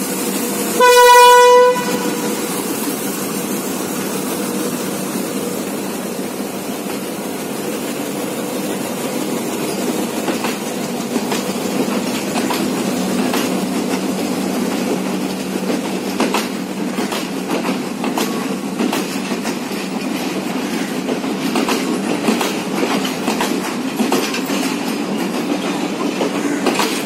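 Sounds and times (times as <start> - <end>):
train carriages rolling past: 0.0 - 27.0
locomotive horn blast: 0.7 - 2.6
wheel clicks over rail joints: 9.8 - 14.1, 14.7 - 27.0.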